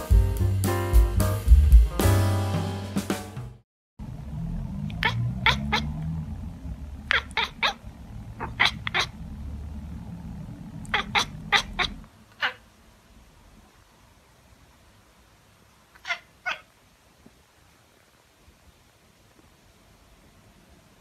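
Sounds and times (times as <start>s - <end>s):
cat chirping and chattering: 4.9s - 6.0s, 7.0s - 9.3s, 10.7s - 12.6s, 15.9s - 16.7s.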